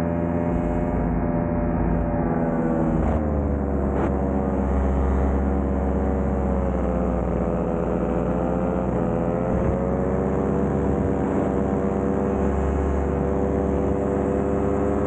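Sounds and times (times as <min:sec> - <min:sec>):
paramotor engine droning: 0:00.0 - 0:15.0.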